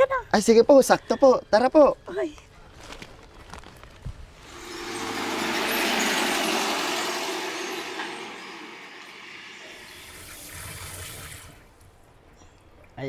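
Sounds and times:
vehicle passing: 4.4 - 10.0.

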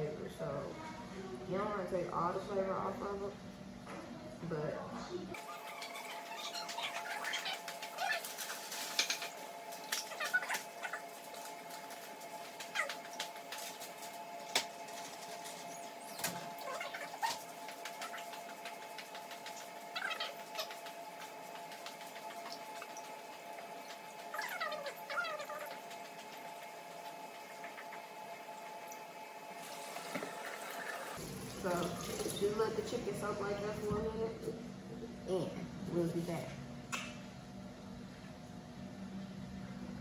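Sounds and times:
wavering pitched calls: 5.4 - 9.3, 15.5 - 18.5, 19.4 - 21.7, 22.4 - 26.7.

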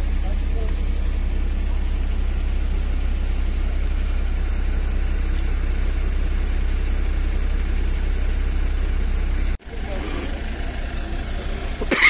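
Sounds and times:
vehicle engines idling: 0.0 - 12.0.

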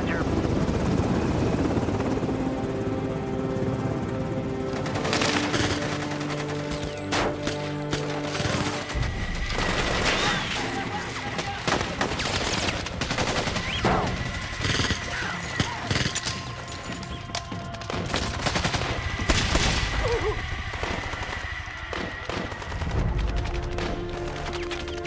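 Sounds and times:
rapid automatic rifle fire: 11.4 - 16.5.

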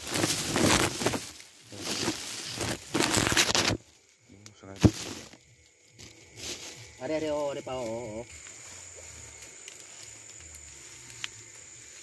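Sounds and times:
plastic sack rustling: 0.0 - 3.8, 4.7 - 5.4.

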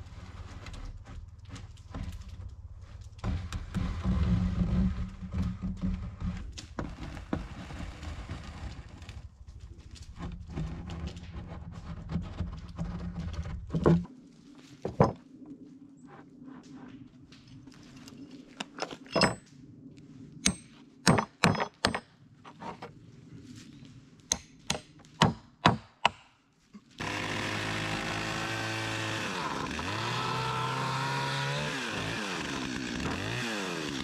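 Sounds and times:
wooden knocks and scrapes: 0.0 - 9.2, 9.8 - 14.1, 14.8 - 15.2, 21.1 - 23.0.

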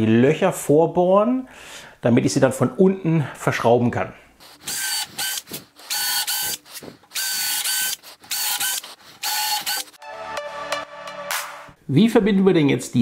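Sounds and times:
cordless drill whining: 4.4 - 10.0.

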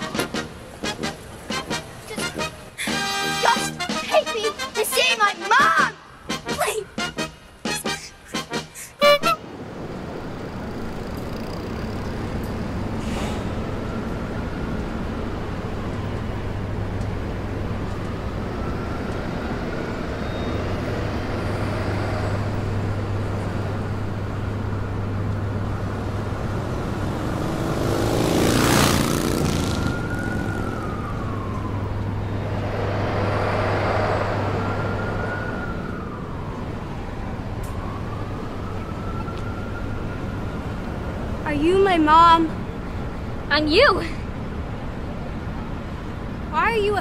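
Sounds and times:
city traffic hum: 0.0 - 47.0
distant siren wailing: 7.0 - 44.0
vehicle passing close: 18.7 - 36.5.

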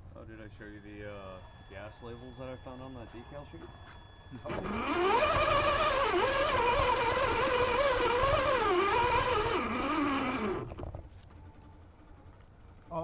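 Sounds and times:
electric motor and gears whining: 0.8 - 13.0.

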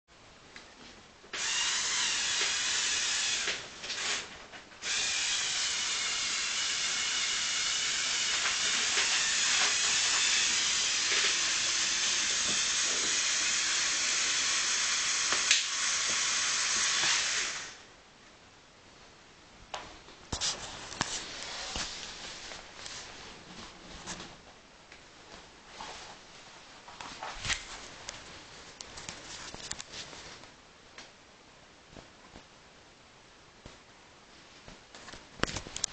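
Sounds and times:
electric motors and gears whirring: 1.3 - 17.8.

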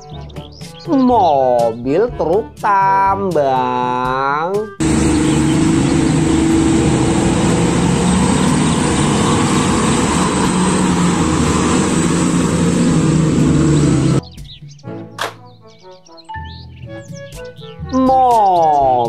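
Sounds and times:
heavy diesel truck engine: 4.8 - 14.2
wide rushing noise: 4.8 - 14.2.

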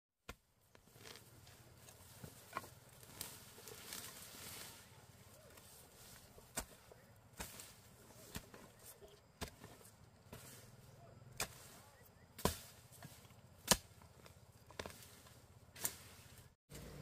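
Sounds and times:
blade chopping: 11.4 - 14.1.

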